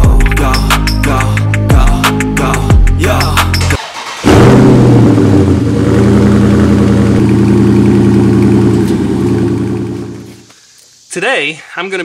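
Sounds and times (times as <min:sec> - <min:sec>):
car engine idling: 0:03.8 - 0:10.5.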